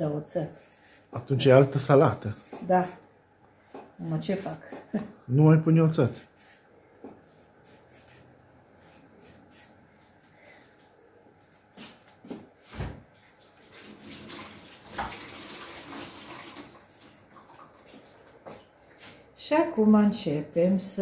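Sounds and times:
kitchen tap running: 0:13.4 - 0:18.4.

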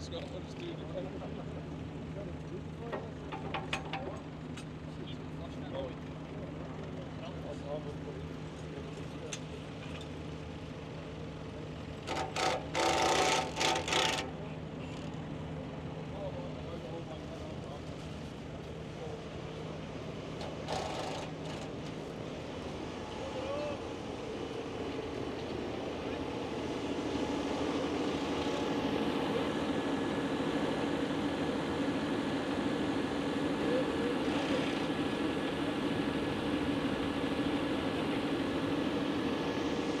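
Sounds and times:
faint steady whine: 0:07.3 - 0:40.0.

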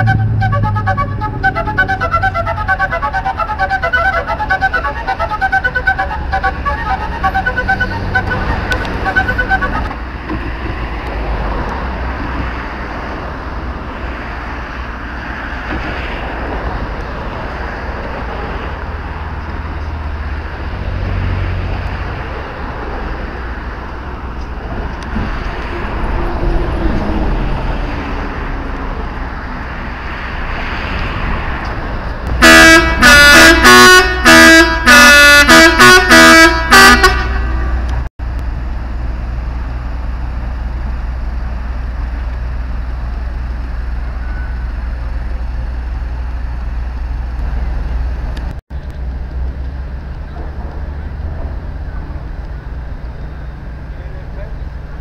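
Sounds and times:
boat horn blasts: 0:00.0 - 0:10.0, 0:32.4 - 0:38.0.

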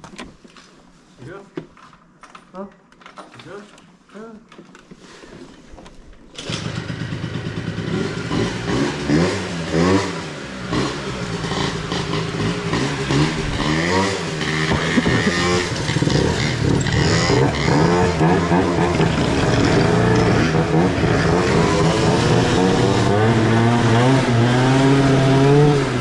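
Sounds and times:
moped engines revving: 0:06.4 - 0:26.0.

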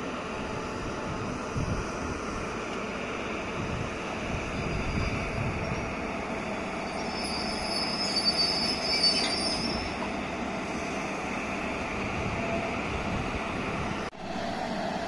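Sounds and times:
electric locomotive rolling: 0:00.0 - 0:15.0
high-pitched wheel squeal: 0:06.8 - 0:10.1.

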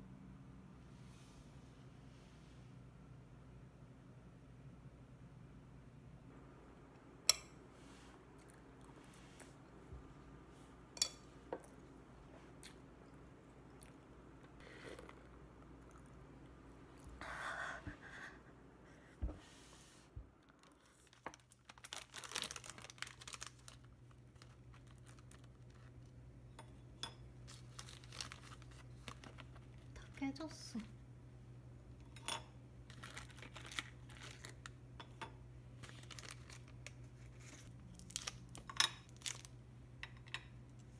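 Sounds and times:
plastic packaging crinkling: 0:20.4 - 0:26.1, 0:27.4 - 0:30.2, 0:32.9 - 0:34.8, 0:35.8 - 0:39.5.

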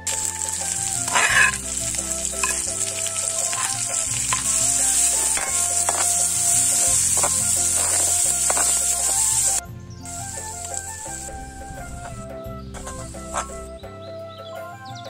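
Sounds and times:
food sizzling in oil: 0:00.0 - 0:12.2, 0:12.8 - 0:13.7
soft background music: 0:00.0 - 0:15.0.

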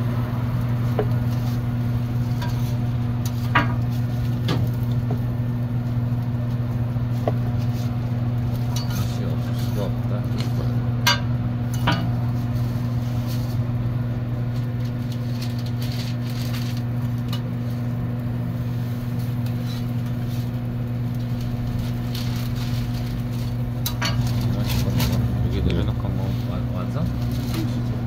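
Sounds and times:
low mechanical hum: 0:00.0 - 0:28.0.

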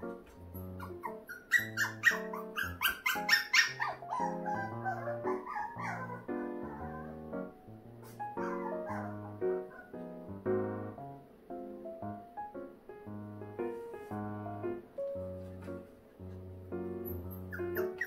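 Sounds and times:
piano music: 0:00.0 - 0:18.0
puppy yipping and whining: 0:00.6 - 0:07.3, 0:08.0 - 0:10.0, 0:17.0 - 0:18.0.

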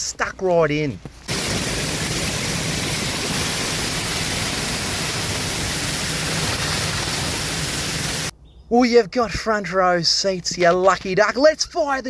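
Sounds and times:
water jet hissing onto soil: 0:01.3 - 0:08.3.

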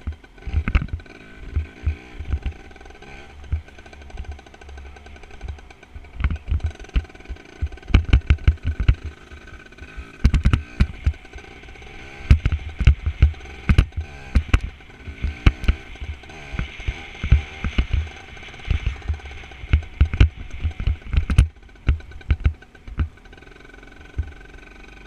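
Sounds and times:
motorbike engine revving: 0:00.0 - 0:25.0
camera knocks and thumps: 0:10.2 - 0:11.2, 0:12.3 - 0:18.0, 0:18.7 - 0:23.1.

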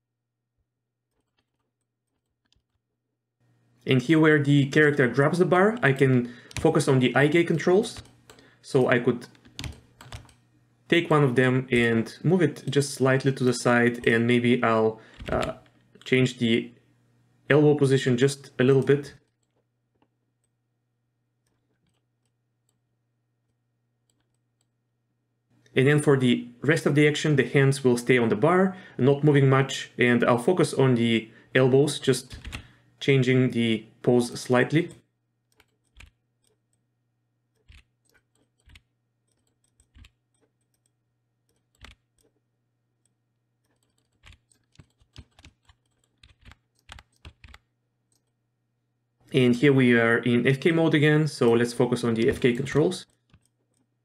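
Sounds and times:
faint low hum: 0:03.4 - 0:54.0
computer mouse clicks: 0:34.9 - 0:36.8, 0:37.5 - 0:42.4, 0:43.0 - 0:48.4, 0:53.0 - 0:53.9
keyboard keystrokes: 0:35.6 - 0:36.2, 0:37.6 - 0:40.9, 0:43.7 - 0:48.3.

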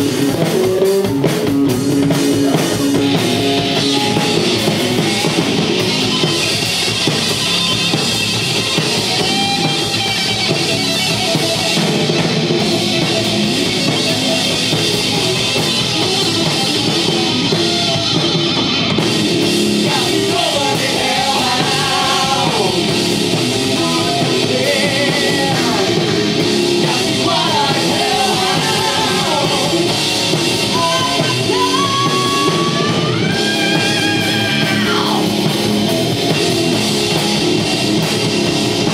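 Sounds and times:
metal band playing: 0:00.0 - 0:38.9
person singing: 0:19.8 - 0:23.1, 0:23.7 - 0:30.0, 0:30.6 - 0:35.3.

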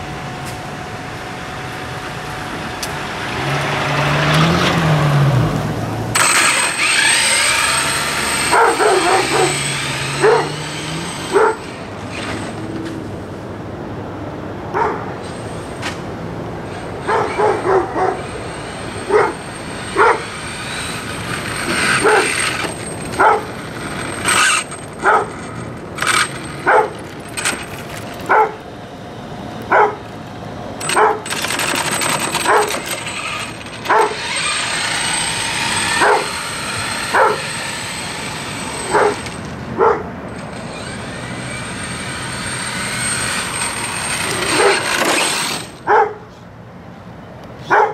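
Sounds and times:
rc truck passing at speed: 0:02.6 - 0:13.2, 0:16.6 - 0:28.5, 0:30.8 - 0:46.0
dog barking: 0:08.5 - 0:09.6, 0:10.2 - 0:10.6, 0:11.3 - 0:11.6, 0:14.7 - 0:15.1, 0:17.0 - 0:18.2, 0:19.1 - 0:19.4, 0:20.0 - 0:20.2, 0:22.0 - 0:22.4, 0:23.2 - 0:23.5, 0:25.0 - 0:25.3, 0:26.6 - 0:27.0, 0:28.3 - 0:28.6, 0:29.7 - 0:30.0, 0:30.9 - 0:31.2, 0:32.4 - 0:32.7, 0:33.9 - 0:34.2, 0:36.0 - 0:36.4, 0:37.1 - 0:37.5, 0:38.9 - 0:39.2, 0:39.8 - 0:40.1, 0:45.9 - 0:46.3, 0:47.6 - 0:47.9.

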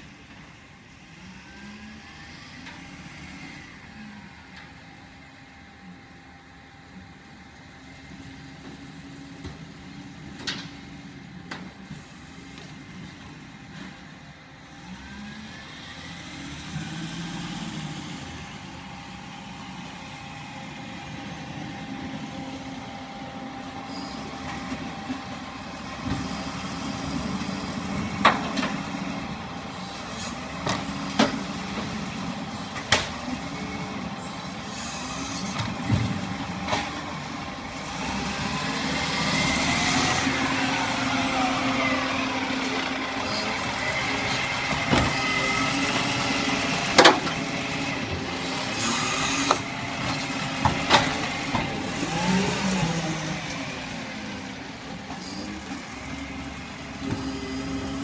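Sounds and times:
garbage truck engine running: 0:02.5 - 0:58.0
rising whine: 0:33.5 - 0:58.0.

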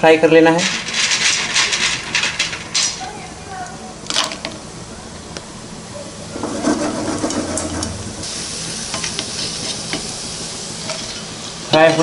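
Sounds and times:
food sizzling in hot oil: 0:08.2 - 0:12.0.

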